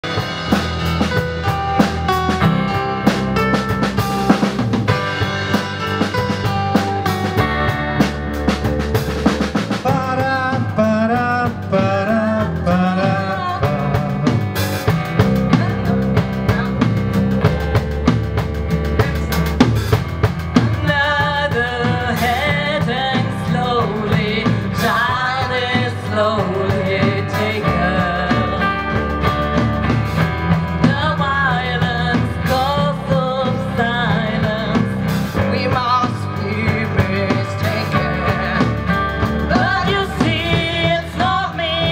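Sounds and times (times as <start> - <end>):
bass guitar: 0.0 - 41.9
drum kit: 0.0 - 41.9
guitars: 0.0 - 41.9
women singing into microphones: 12.0 - 14.4, 20.7 - 29.7, 30.8 - 41.9.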